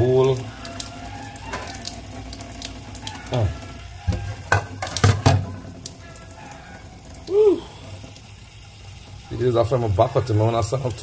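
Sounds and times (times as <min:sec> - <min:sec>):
tap water running into sink: 0:00.0 - 0:11.0
knocks and clatters in sink: 0:03.3 - 0:05.6.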